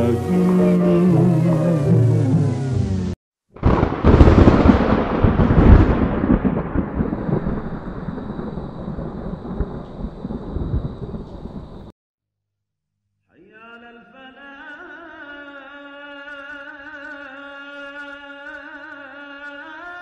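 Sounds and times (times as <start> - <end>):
thunder crack and rumble: 3.6 - 11.9.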